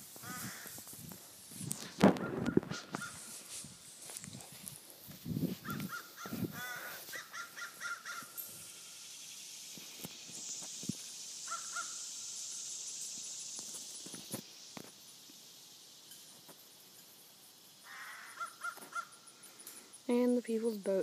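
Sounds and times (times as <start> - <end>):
crow cawing: 0.2 - 0.8, 2.4 - 3.2, 5.6 - 8.4, 11.5 - 12.0, 17.8 - 19.2.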